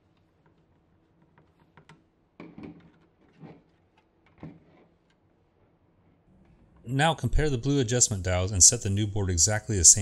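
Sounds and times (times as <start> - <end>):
plastic and tools knocking on table: 1.8 - 4.8.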